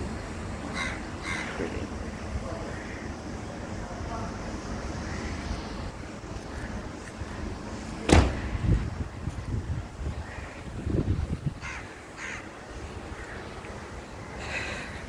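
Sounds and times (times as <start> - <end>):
crows cawing: 0.7 - 1.8, 2.6 - 3.2, 5.0 - 5.5, 10.2 - 10.7, 11.6 - 13.6
wind buffeting microphone: 6.7 - 13.2
thump on microphone: 8.1 - 8.5.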